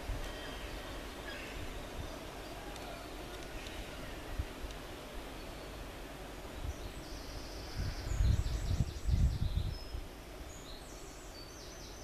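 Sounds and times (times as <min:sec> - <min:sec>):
small birds singing: 0:00.0 - 0:12.0.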